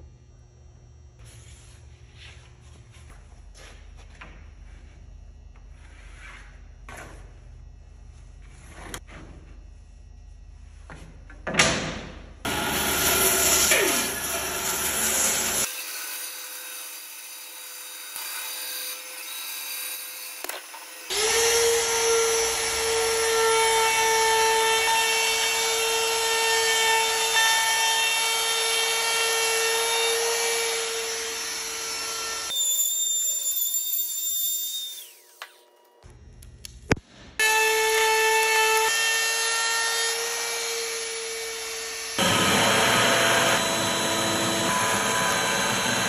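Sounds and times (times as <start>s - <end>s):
router high whine: 12.5s - 15.8s, 37.4s - 46.0s
loud rough cutting noise: 12.5s - 16.6s, 40.1s - 46.0s.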